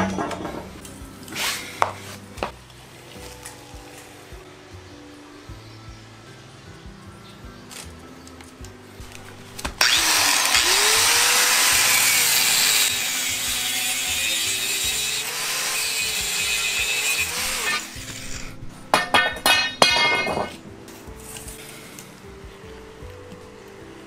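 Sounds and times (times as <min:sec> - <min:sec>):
loud metal clanks: 0:00.0 - 0:00.8, 0:18.9 - 0:20.6
angle grinder cutting steel pipe: 0:09.8 - 0:20.6.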